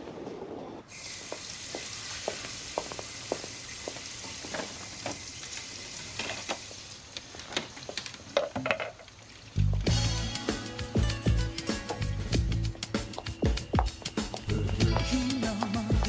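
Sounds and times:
steady high hiss: 0.9s - 7.7s.

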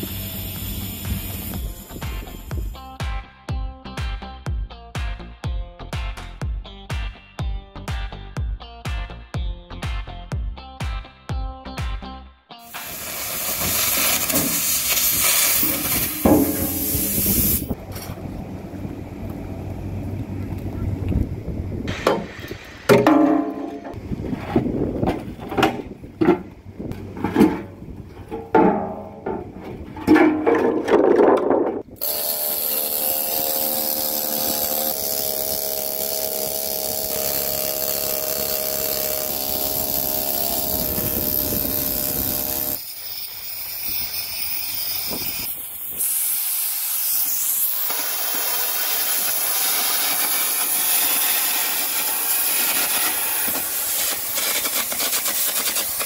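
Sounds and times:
welding hiss: 0.0s - 2.8s, 12.6s - 17.8s, 32.0s - 56.0s
pneumatic chipping tool chattering: 12.7s - 17.8s, 32.0s - 56.0s.

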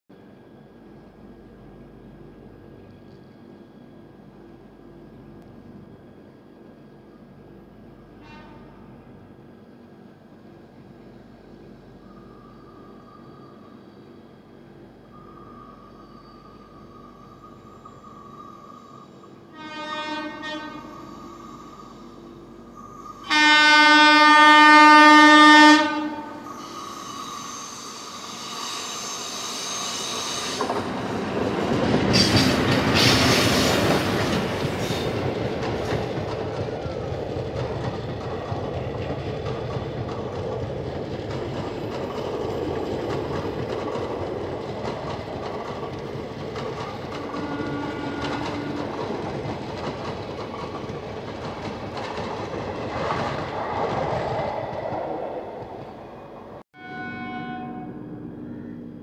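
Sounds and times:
train rushing past: 0.2s - 59.0s
train horn blast: 8.2s - 9.2s, 19.5s - 21.6s, 23.2s - 26.6s, 47.2s - 49.0s, 56.8s - 58.8s
wheels clacking over rail joints: 30.6s - 56.6s.

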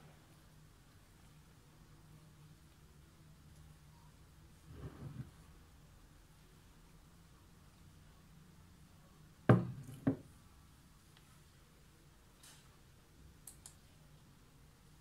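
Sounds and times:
mug knocking on wooden desk: 9.5s - 10.2s
faint computer mouse clicks: 13.4s - 13.8s.

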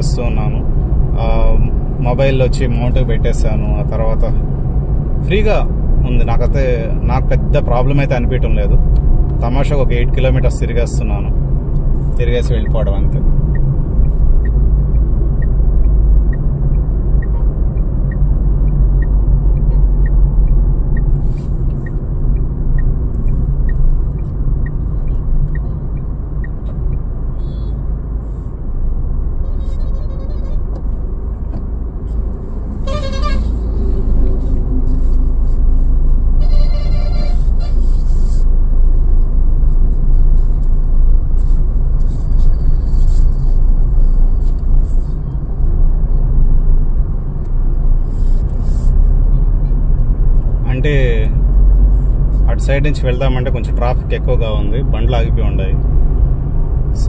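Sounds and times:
road and engine rumble in car: 0.0s - 57.0s
light regular ticking: 8.8s - 28.2s
vehicle horn: 29.4s - 30.8s, 32.8s - 33.7s, 36.4s - 37.9s.

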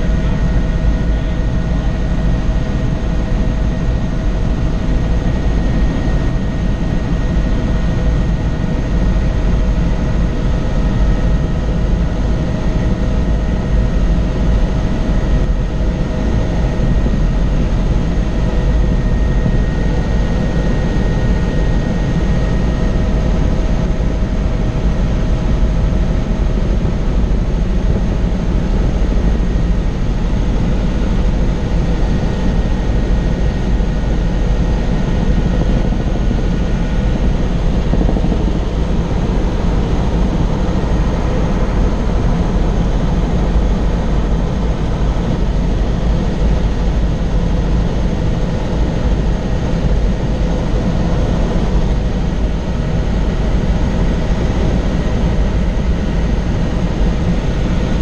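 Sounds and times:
helicopter engine and rotor drone: 0.0s - 58.0s.

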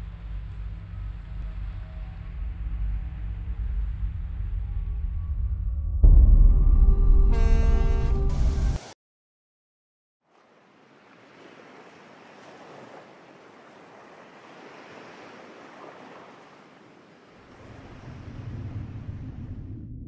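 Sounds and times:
low rumble: 0.0s - 8.8s, 17.6s - 20.0s
ocean waves and surf: 10.2s - 19.8s.

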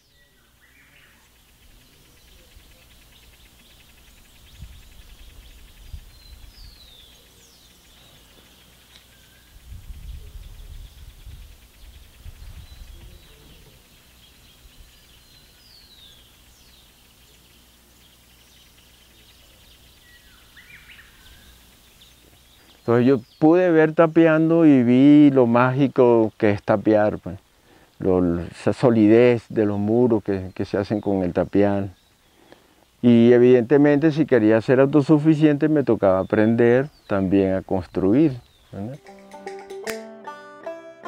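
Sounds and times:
high insect buzz: 0.0s - 22.8s
birds chirping: 0.0s - 40.6s
wind rumbling on microphone: 4.1s - 7.0s, 9.3s - 16.2s.

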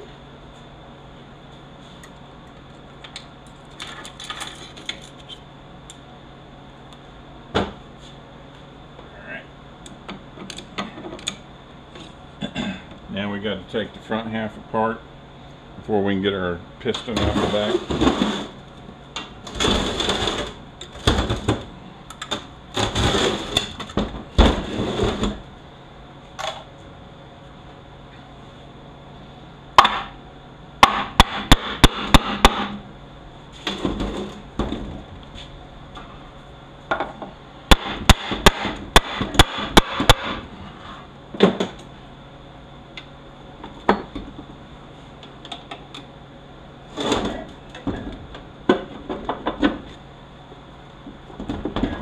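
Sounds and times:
clatter of parts and tools: 3.5s - 5.4s.

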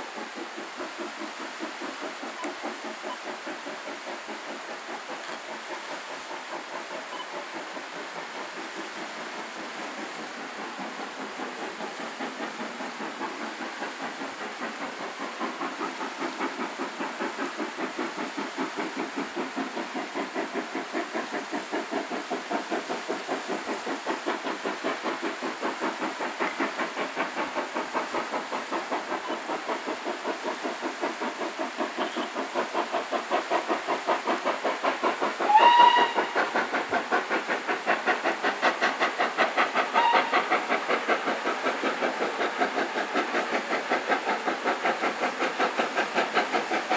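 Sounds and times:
steam locomotive chuffing: 0.0s - 46.9s
steam locomotive whistle: 35.5s - 36.4s, 40.0s - 40.4s.

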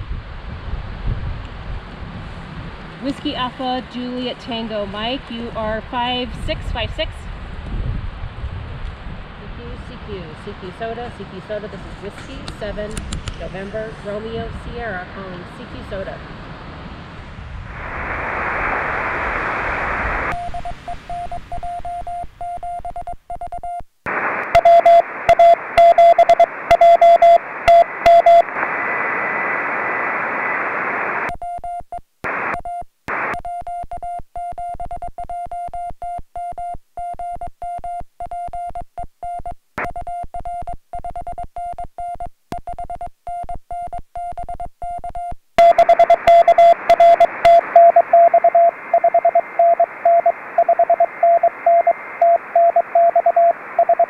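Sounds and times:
receiver hiss: 17.7s - 31.4s, 32.2s - 33.9s, 39.8s - 41.4s, 43.9s - 54.0s
morse code tone: 20.3s - 23.8s, 24.5s - 28.5s, 31.3s - 54.0s.

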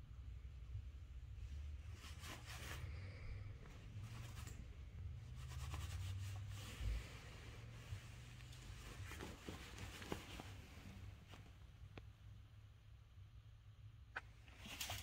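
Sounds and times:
rubbing of fur and cloth: 5.2s - 11.5s.

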